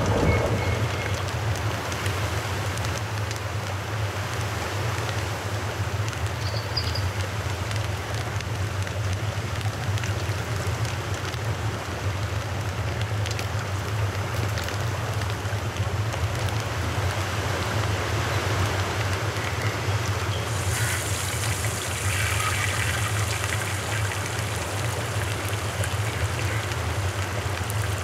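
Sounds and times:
low rumble: 0.0s - 2.0s
outdoor rushing noise: 0.0s - 2.8s
faint crackles: 18.3s - 28.0s.

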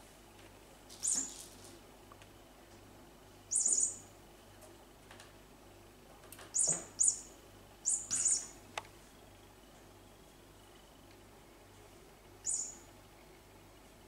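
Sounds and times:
toy mouse squeaking: 3.5s - 4.0s, 6.6s - 7.2s, 7.9s - 8.5s.

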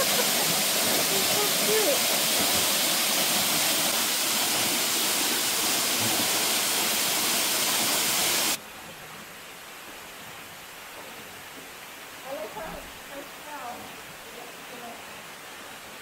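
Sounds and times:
waterfall rushing: 0.0s - 8.6s
faint steady hiss: 0.0s - 16.0s.

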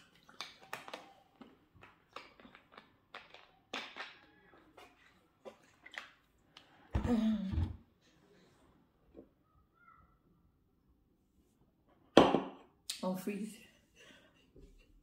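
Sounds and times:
eating and drinking noises: 0.0s - 9.5s.

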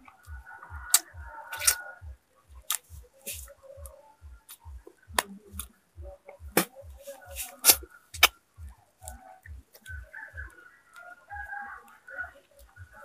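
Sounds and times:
low thudding pulse: 0.0s - 10.6s
man eating with lip smacks: 1.0s - 1.8s.

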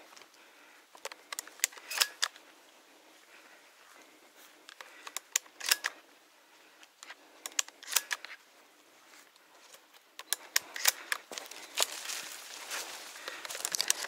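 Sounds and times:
twigs snapping underfoot: 10.2s - 14.0s
footsteps through dry leaves: 11.3s - 14.0s.

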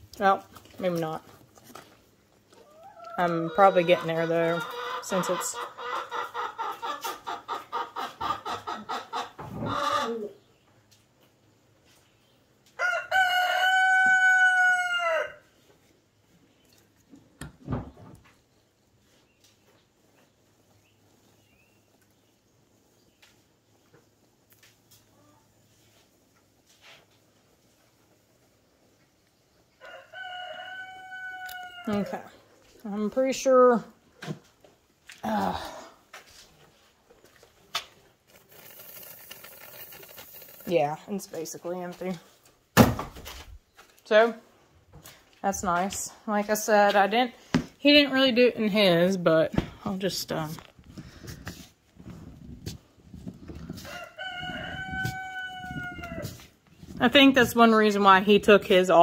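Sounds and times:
rooster crowing: 12.8s - 15.4s, 29.8s - 31.9s, 53.8s - 56.4s.

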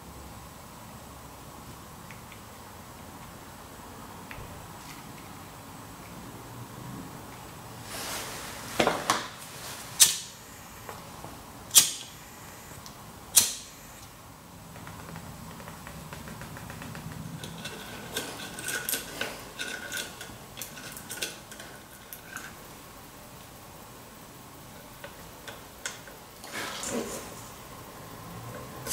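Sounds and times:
lighter clicking: 11.7s - 12.1s, 13.3s - 13.7s
lighter gas hissing: 11.7s - 12.2s, 13.3s - 14.1s.

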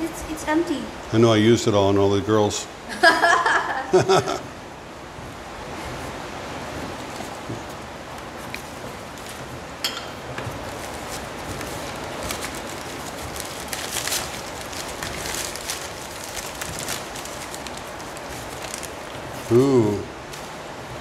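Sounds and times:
steady background hiss: 0.0s - 21.0s
packing paper crinkling: 10.5s - 19.6s.

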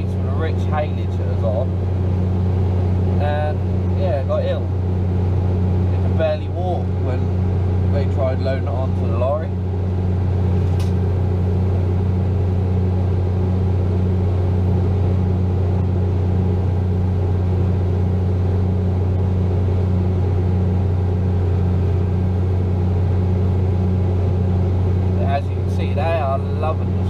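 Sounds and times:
tractor engine droning: 0.0s - 27.0s
single click: 10.7s - 11.0s.

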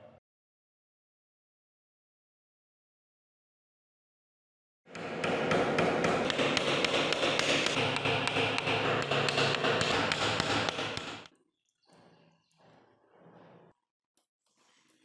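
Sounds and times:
hammer tapping on wooden block: 5.0s - 11.3s.

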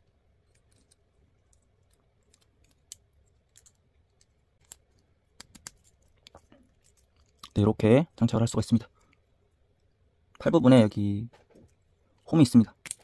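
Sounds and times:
plastic parts clicking: 0.4s - 7.5s.

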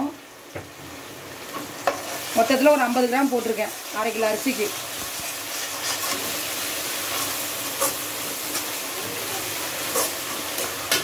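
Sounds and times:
onions sizzling in hot oil: 0.0s - 11.0s
spatula scraping pan: 5.2s - 8.8s, 9.7s - 11.0s.

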